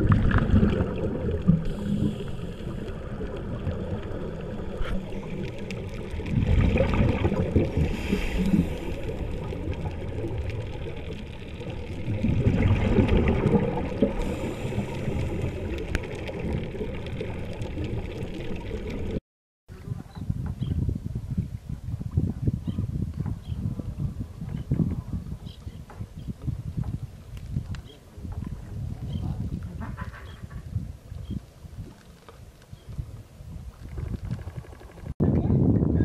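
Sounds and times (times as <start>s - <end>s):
low underwater rumble: 0.0s - 19.2s
underwater bubbles gurgling: 0.0s - 19.2s.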